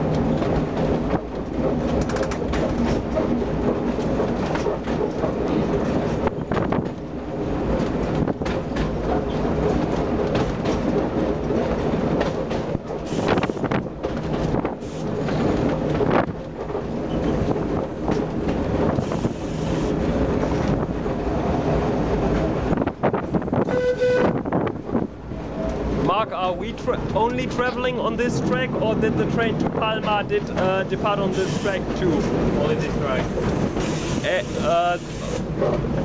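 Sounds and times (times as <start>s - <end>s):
tram rumble: 0.0s - 36.0s
tram wheels clattering on rails: 0.0s - 36.0s
short horn note: 23.7s - 24.4s.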